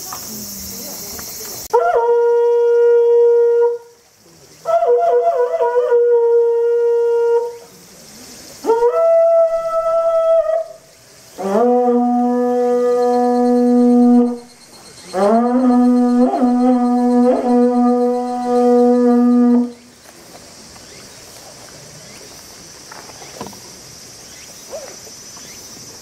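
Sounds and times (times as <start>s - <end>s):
conch shell trumpet blasts: 11.4s - 14.5s, 15.1s - 19.8s.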